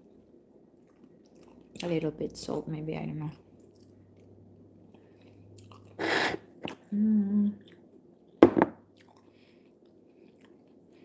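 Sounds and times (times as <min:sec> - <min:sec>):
faint chewing: 0:00.8 - 0:01.8, 0:03.5 - 0:06.0, 0:07.6 - 0:11.0
person humming mmm: 0:06.9 - 0:07.6.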